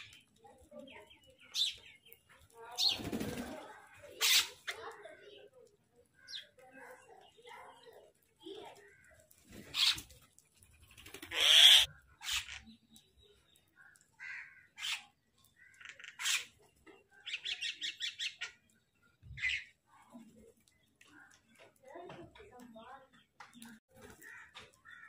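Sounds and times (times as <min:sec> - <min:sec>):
mynas calling: 0:11.0 - 0:13.0.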